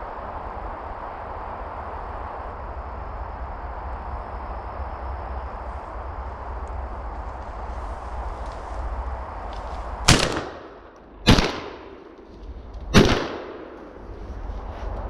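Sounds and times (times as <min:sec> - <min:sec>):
shotgun shots: 0:10.1 - 0:12.1, 0:12.9 - 0:13.8.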